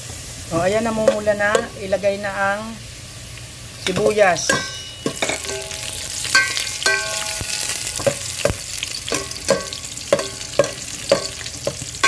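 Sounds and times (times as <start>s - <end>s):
food sizzling in hot oil: 0.0s - 12.0s
metal spoon knocking and scraping pot: 0.6s - 1.9s, 3.9s - 12.0s.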